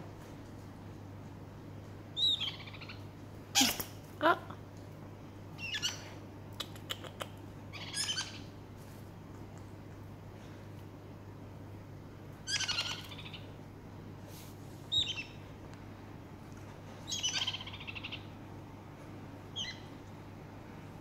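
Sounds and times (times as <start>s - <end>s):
small bird chirping: 2.1s - 3.8s, 5.6s - 8.5s, 12.4s - 13.6s, 14.9s - 15.5s, 17.0s - 18.4s, 19.5s - 20.0s.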